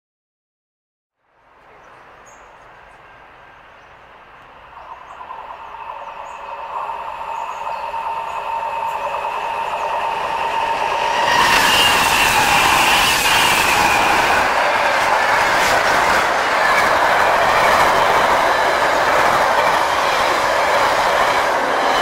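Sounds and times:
freight train rushing past: 3.0 - 22.0
wind buffeting microphone: 4.8 - 22.0.

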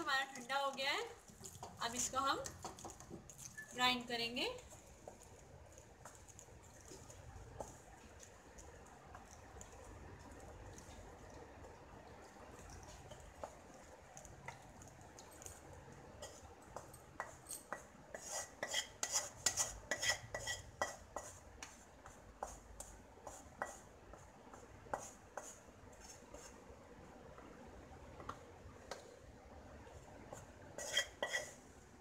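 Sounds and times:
wooden spatula scraping metal pan: 18.1 - 21.4, 30.8 - 31.6.

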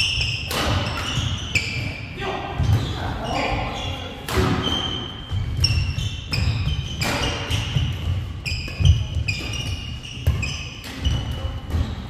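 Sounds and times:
sneakers squeaking: 0.0 - 12.0.

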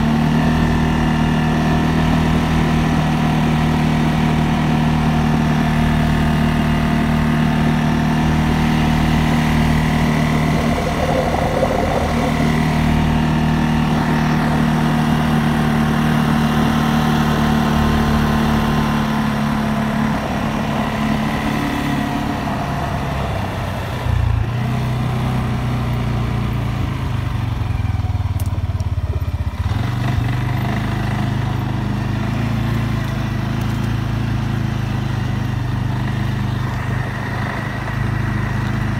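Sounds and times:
atv engine running: 0.0 - 38.9.

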